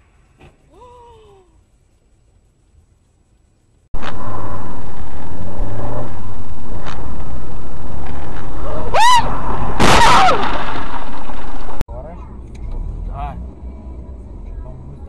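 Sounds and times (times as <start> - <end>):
car road and engine noise: 1.6 - 15.0
high-pitched squeals: 4.0 - 11.8
sudden noisy burst: 4.0 - 11.8.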